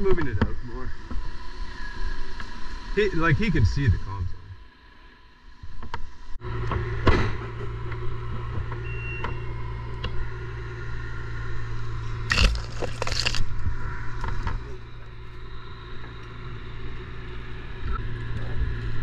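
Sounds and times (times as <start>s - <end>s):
crane engine droning: 0.0s - 19.0s.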